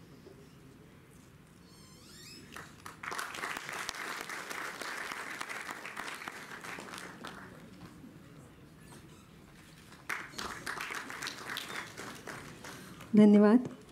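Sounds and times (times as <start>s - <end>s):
audience applauding: 2.5s - 8.0s, 9.9s - 13.2s.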